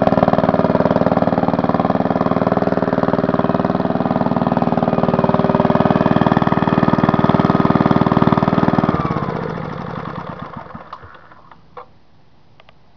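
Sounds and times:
small engine running and stopping: 0:00.0 - 0:11.8
small click: 0:12.6 - 0:12.8.

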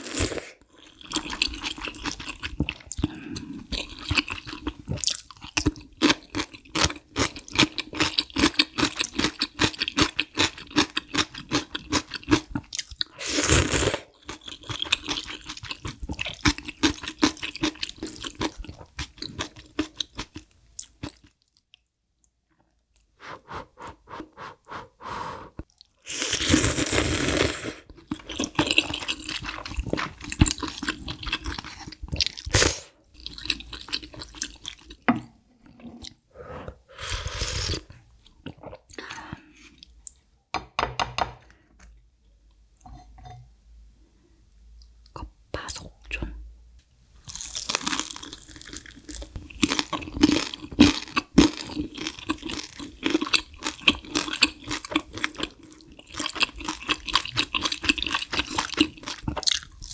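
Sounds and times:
slurping noodles: 0:00.0 - 0:05.2, 0:13.2 - 0:14.1, 0:23.2 - 0:30.4, 0:35.9 - 0:38.0
slurp of broth from a spoon: 0:23.2 - 0:27.9
crunchy chewing: 0:47.2 - 0:59.9.

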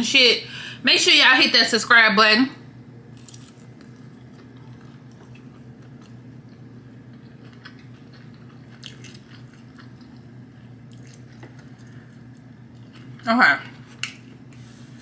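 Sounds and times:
steady low hum: 0:00.0 - 0:15.0
chewing fried chicken: 0:03.2 - 0:14.3.

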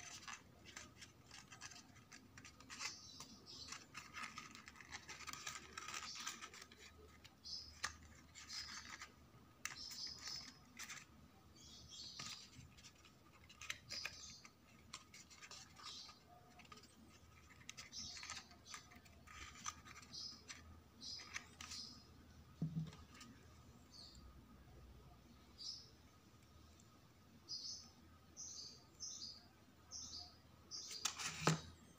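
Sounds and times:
card paper rustling and scraping: 0:00.0 - 0:22.0, 0:30.9 - 0:31.7.

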